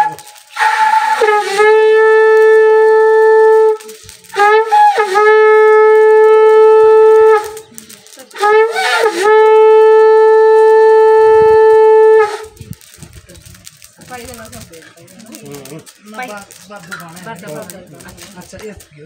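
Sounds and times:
conch shell blasts: 0:00.0 - 0:07.7, 0:08.4 - 0:12.6.

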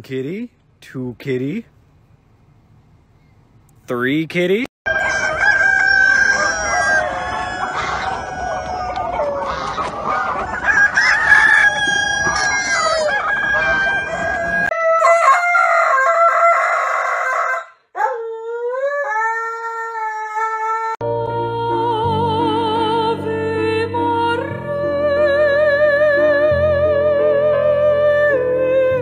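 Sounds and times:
hens clucking: 0:04.9 - 0:14.8
roosters crowing: 0:04.9 - 0:21.0
dog howling: 0:18.0 - 0:21.0.

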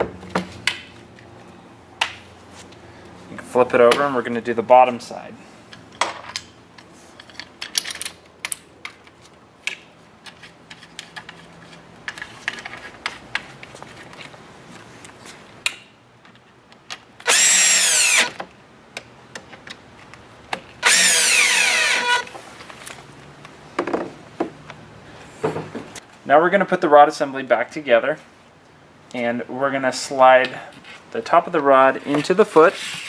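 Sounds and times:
light clicks and knocks of parts: 0:05.7 - 0:17.1
cordless drill driving screws: 0:17.2 - 0:18.4, 0:20.8 - 0:22.3.

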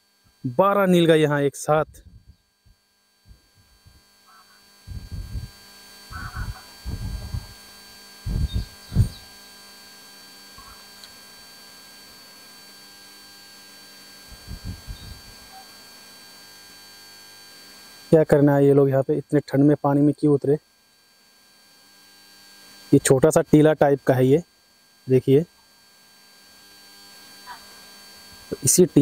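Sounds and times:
electrical hum: 0:00.0 - 0:29.0
low rumbles on microphone: 0:04.9 - 0:07.6, 0:08.2 - 0:09.3, 0:14.3 - 0:15.3.

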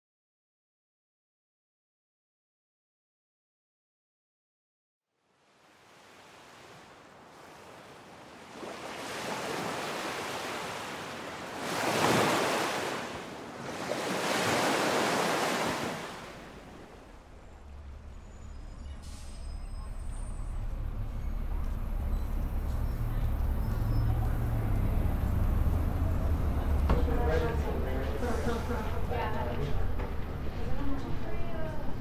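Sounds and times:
waves breaking on a shore: 0:05.3 - 0:17.4.

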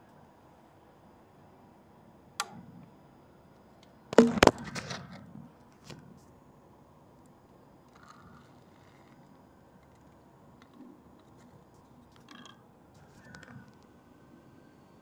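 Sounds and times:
rustling and knocking: 0:04.2 - 0:04.9.

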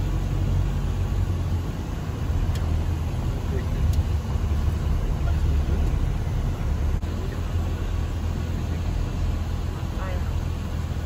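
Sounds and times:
van engine and tyres rumbling: 0:00.0 - 0:11.0.

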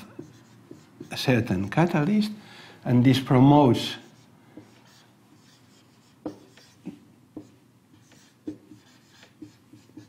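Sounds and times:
marker squeaks and taps: 0:00.0 - 0:01.2, 0:04.6 - 0:10.0
marker writing on a whiteboard: 0:00.0 - 0:01.5, 0:03.9 - 0:10.0.

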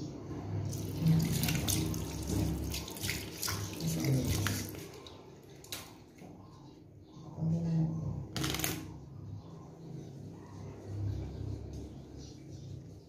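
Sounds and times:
tap water splashing into sink: 0:00.7 - 0:06.0.

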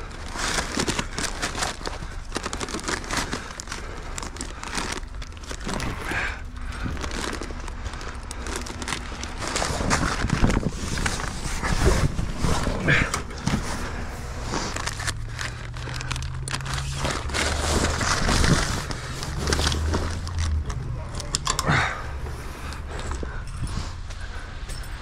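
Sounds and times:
plastic tarp rustling and crinkling: 0:00.0 - 0:21.3
low steady hum: 0:00.0 - 0:25.0
clicks of hooks and straps: 0:14.8 - 0:22.1.

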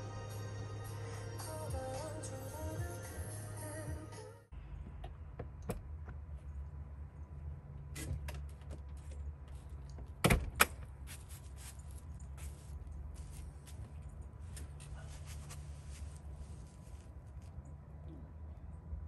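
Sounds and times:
trailer door clicks and knocks: 0:04.8 - 0:06.1, 0:10.0 - 0:10.9.

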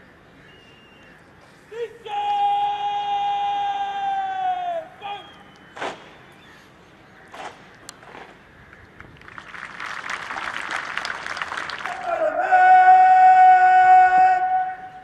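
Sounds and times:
man shouting a command: 0:01.7 - 0:05.3, 0:11.9 - 0:15.0.

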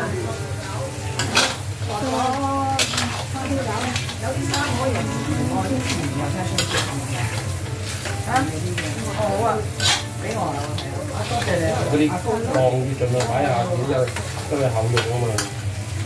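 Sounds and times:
crab sizzling in a wok: 0:00.0 - 0:16.0
spatula scraping a pan: 0:01.2 - 0:15.5.

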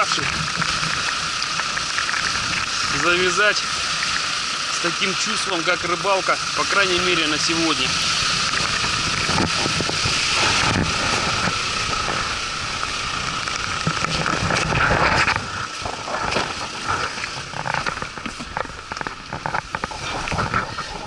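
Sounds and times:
wind blowing across microphone: 0:00.0 - 0:21.0.

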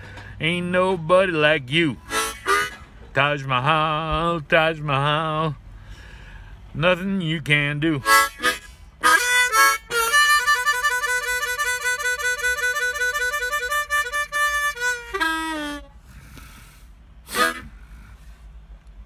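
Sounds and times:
harmonica warbling and bending: 0:02.0 - 0:02.9, 0:08.0 - 0:16.0, 0:17.3 - 0:17.7.

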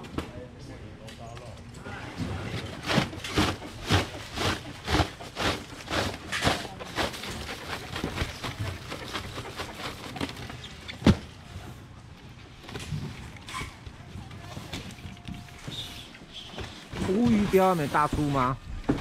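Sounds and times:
styrofoam boxes knocking and scraping: 0:02.5 - 0:11.3, 0:16.5 - 0:19.0.

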